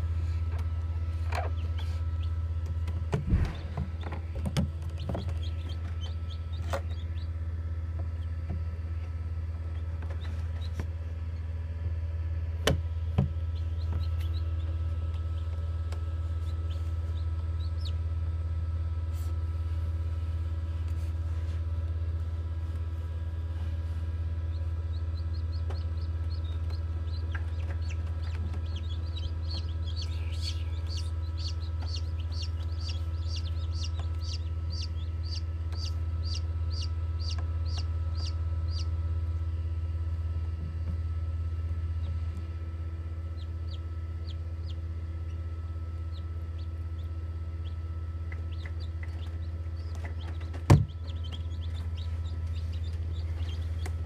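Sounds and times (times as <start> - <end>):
low hum: 0.0 - 54.0
chicks peeping: 1.0 - 8.4, 13.4 - 18.2, 23.5 - 39.1, 42.0 - 54.0.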